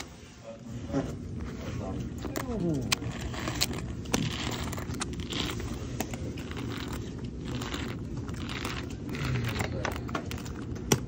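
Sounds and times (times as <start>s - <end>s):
room noise: 0.0s - 11.0s
poker chips clicking: 2.2s - 10.8s.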